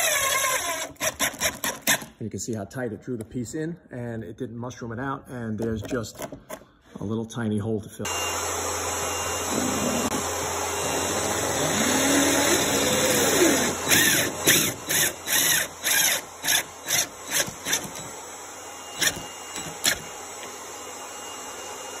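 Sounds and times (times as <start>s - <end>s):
power drill driving screw: 0.0s - 2.1s, 8.4s - 21.6s.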